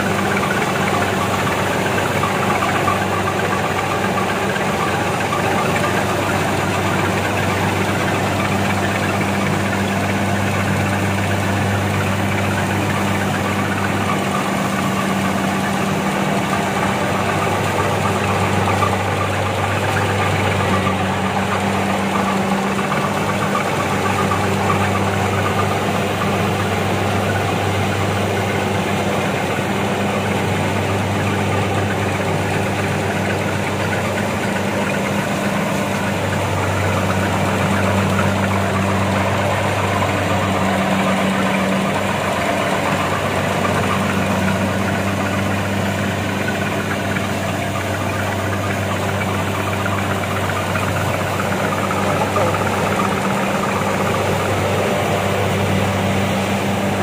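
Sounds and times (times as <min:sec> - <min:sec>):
diesel engine hum: 0:00.0 - 0:57.0
harvester machinery clatter: 0:00.0 - 0:57.0.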